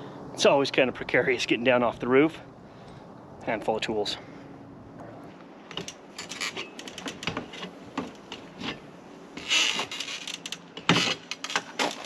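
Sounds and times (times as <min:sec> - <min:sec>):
scraping rustle: 0:05.2 - 0:12.0.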